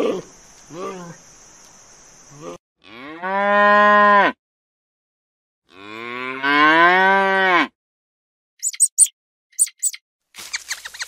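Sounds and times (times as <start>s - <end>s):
cattle mooing: 5.7s - 7.7s.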